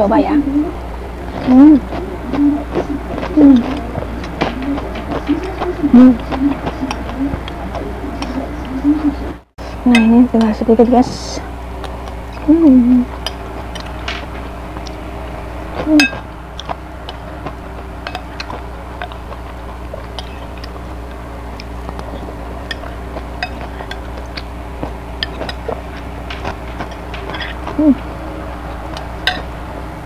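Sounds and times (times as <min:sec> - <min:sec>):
steady low hum: 0:00.0 - 0:30.0
spoon scraping ceramic bowl: 0:18.0 - 0:27.8.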